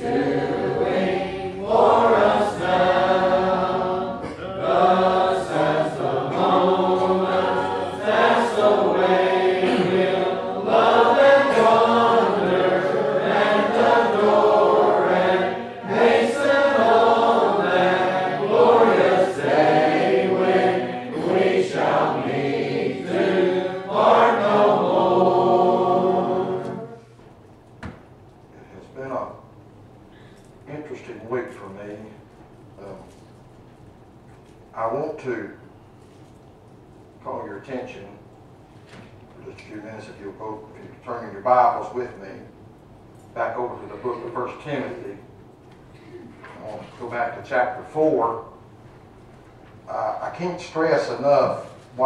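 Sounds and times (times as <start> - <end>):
congregation singing a hymn: 0.0 - 27.2.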